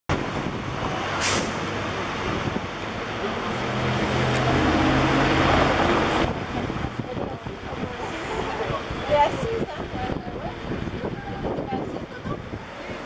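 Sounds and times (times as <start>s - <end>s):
cable car rumble and clatter: 0.1s - 13.0s
vehicle engine hum: 0.1s - 13.0s
short hiss: 1.2s - 1.6s.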